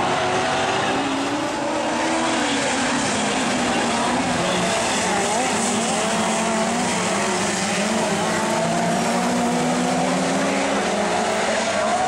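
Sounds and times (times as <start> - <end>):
sprint car engines droning: 0.0 - 12.0.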